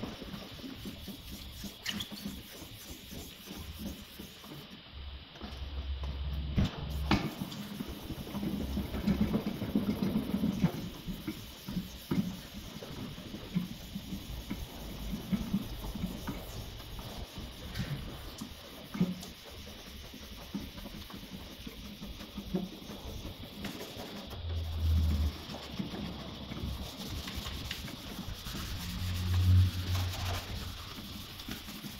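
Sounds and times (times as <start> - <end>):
hand rubbing car panel: 0.4 - 4.6, 25.3 - 31.9.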